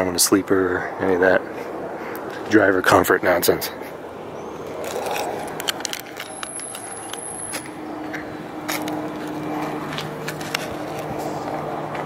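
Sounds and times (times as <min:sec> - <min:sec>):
low hum: 0:03.8 - 0:12.0.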